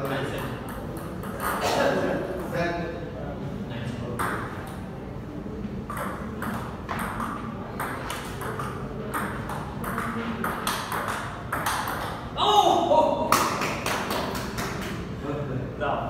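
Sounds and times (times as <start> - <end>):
ping pong ball clicking: 0.2 - 1.6, 5.9 - 12.2.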